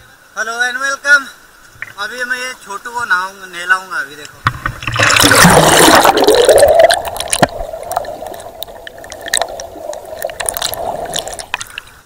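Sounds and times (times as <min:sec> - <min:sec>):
underwater river water rushing: 0:04.4 - 0:12.0
bubbles clicking and popping: 0:04.6 - 0:12.0.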